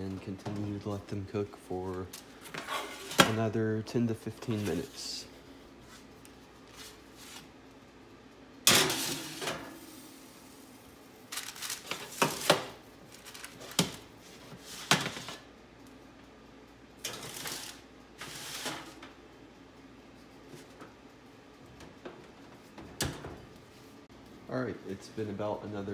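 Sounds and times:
baking sheets clattering on oven racks: 8.7s - 9.8s, 11.4s - 15.5s, 17.0s - 19.1s.

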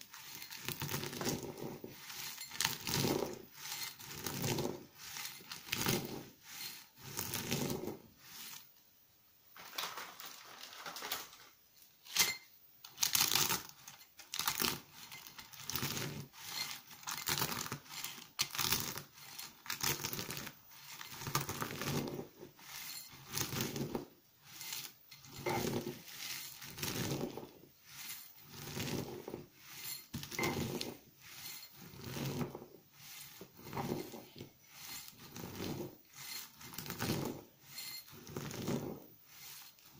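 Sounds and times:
soap flakes crunching in mortar: 0.0s - 8.6s, 13.0s - 39.9s.

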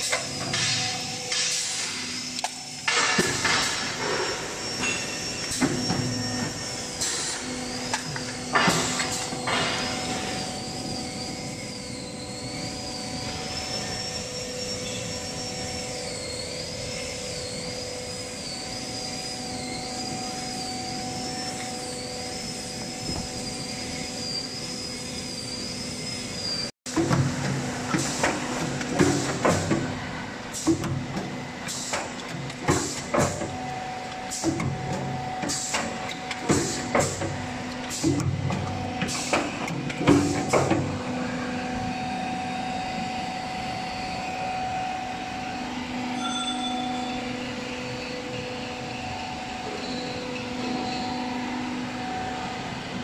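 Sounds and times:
machine humming and whining: 0.0s - 53.0s.

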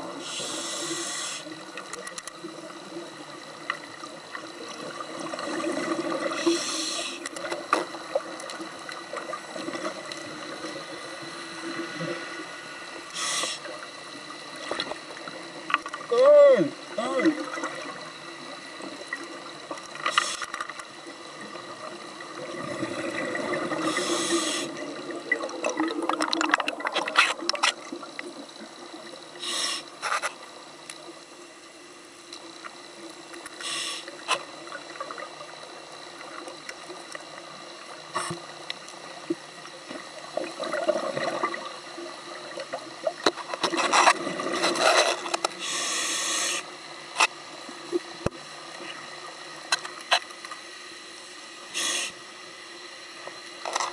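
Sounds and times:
regulator inhalation hiss: 0.0s - 1.7s, 6.2s - 7.4s, 11.1s - 13.9s, 20.0s - 20.7s, 23.7s - 25.0s, 29.3s - 30.2s, 33.5s - 34.4s, 45.5s - 47.0s, 51.2s - 52.5s
bubbling exhalation: 24.7s - 27.6s.

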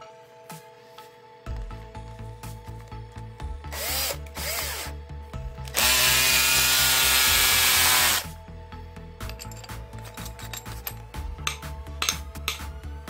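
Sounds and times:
cordless drill motor whine: 3.7s - 5.0s, 5.6s - 8.3s.

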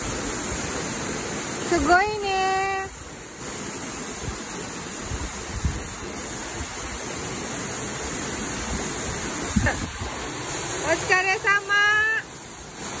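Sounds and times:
waterfall roaring: 0.0s - 13.0s.

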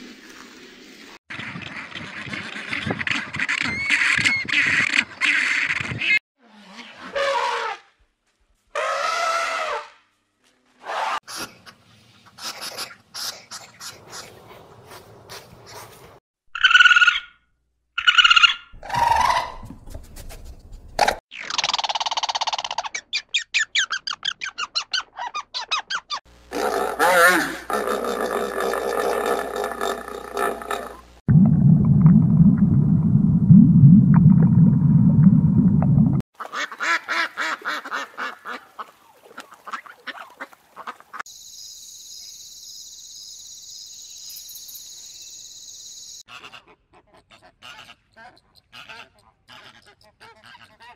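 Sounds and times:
raccoon calling: 18.0s - 19.7s
loud low rumble: 31.3s - 36.2s
duck quacking: 36.4s - 38.6s, 46.3s - 50.9s.

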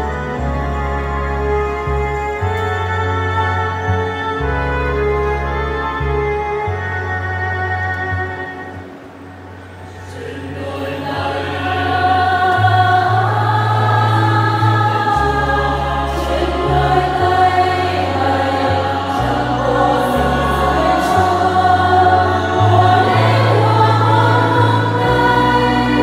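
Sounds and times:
choir singing a hymn: 9.5s - 26.0s
low bass notes: 11.1s - 26.0s.

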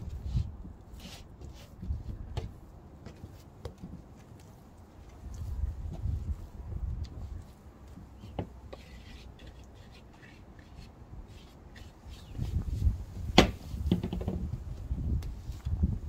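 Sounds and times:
light wooden knocks: 13.4s - 14.5s.

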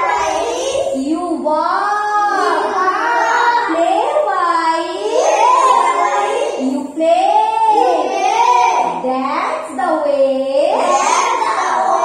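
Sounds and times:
young children singing: 0.0s - 9.1s, 9.8s - 12.0s.

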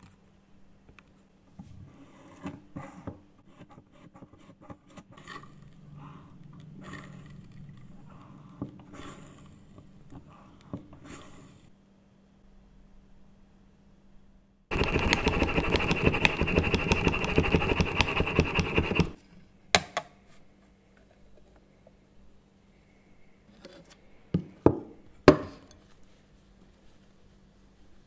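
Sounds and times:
french press plunger pumping milk: 14.7s - 19.2s.

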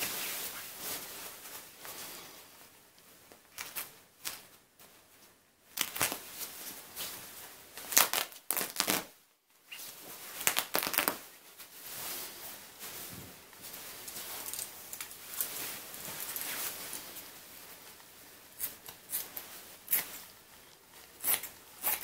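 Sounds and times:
nylon fabric rustling: 0.0s - 3.2s, 4.3s - 18.5s
fabric ripping: 5.8s - 6.2s, 7.9s - 9.1s, 10.4s - 11.2s.

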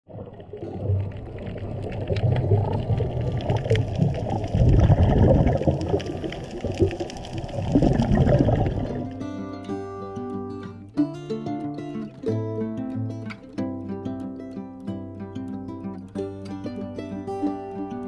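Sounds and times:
underwater churning water: 0.1s - 9.2s.

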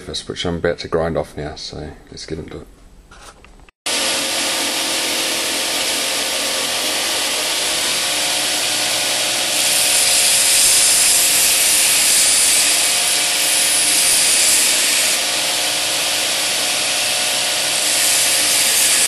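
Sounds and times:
belt grinder grinding steel blade: 3.9s - 19.0s.

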